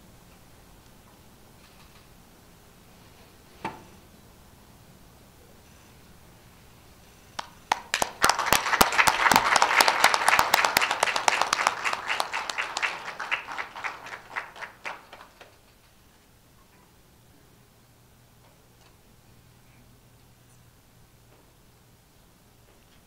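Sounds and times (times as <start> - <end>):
audience applauding: 7.4 - 15.7.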